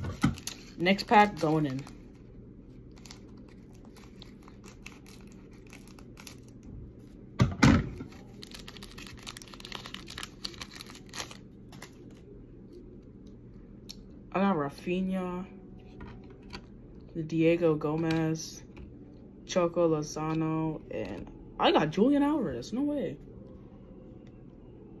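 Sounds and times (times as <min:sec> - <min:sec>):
wrapper crinkling and tearing: 0:00.0 - 0:02.2, 0:02.9 - 0:06.7, 0:08.0 - 0:12.2.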